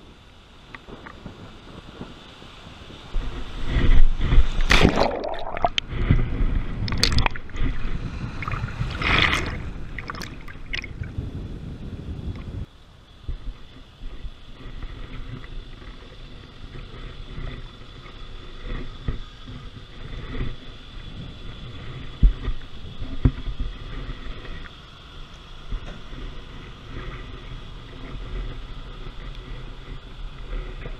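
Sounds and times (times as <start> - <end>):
wind noise on microphone: 0.0 - 30.9
water sloshing and splashing: 4.2 - 6.2, 6.8 - 11.2.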